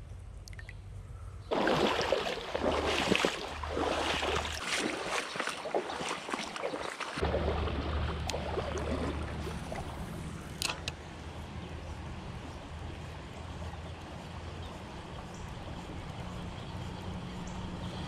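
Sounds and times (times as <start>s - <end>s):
creek rushing: 1.5s - 10.8s.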